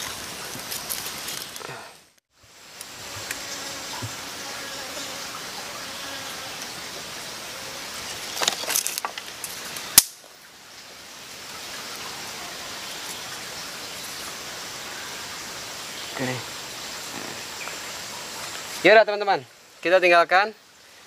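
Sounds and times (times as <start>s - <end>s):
campfire crackling: 0.0s - 4.1s, 6.6s - 11.7s
forest stream rushing: 0.0s - 21.0s
sharp snap: 9.9s - 10.3s.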